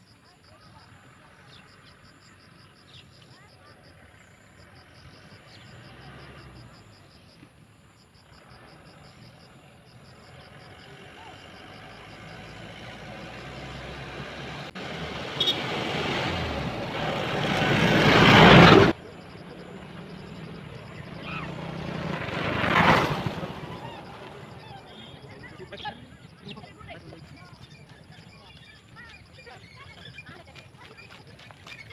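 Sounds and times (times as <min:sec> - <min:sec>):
small vehicle passing: 0:00.8 - 0:31.9
dump truck passing: 0:08.3 - 0:28.1.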